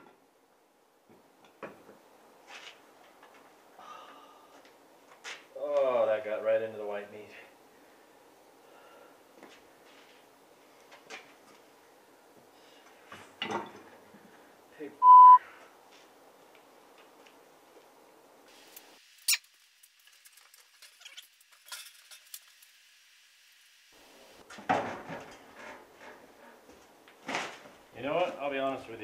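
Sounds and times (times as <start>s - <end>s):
electronic censor bleep: 15.0s - 15.4s.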